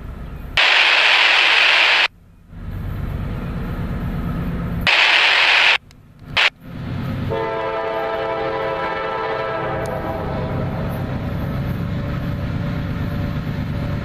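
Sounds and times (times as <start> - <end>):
diesel locomotive rumble: 0.0 - 14.0
scanner radio static bursts: 0.6 - 2.1, 4.9 - 6.5
locomotive air horn: 7.3 - 11.0.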